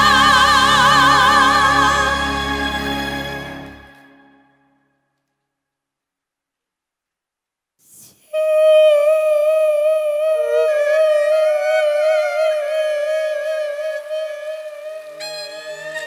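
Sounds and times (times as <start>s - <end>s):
woman singing a ballad: 0.0s - 2.9s, 8.3s - 16.0s
soft accompaniment: 10.2s - 16.0s.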